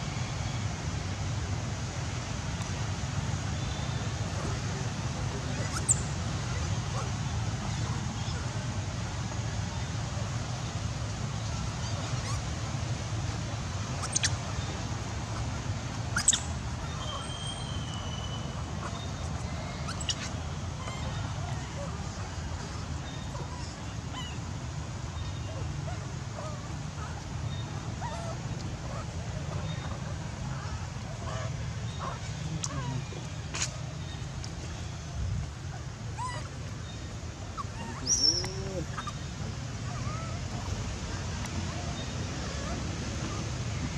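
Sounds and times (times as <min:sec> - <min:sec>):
low outdoor rumble: 0:00.0 - 0:43.9
baby monkey squeaks: 0:14.0 - 0:14.4, 0:16.1 - 0:17.8, 0:19.9 - 0:21.0.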